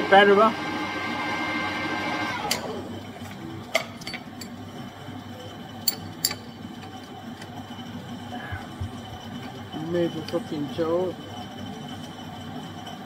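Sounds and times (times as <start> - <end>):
lathe spinning down: 0.0 - 3.1.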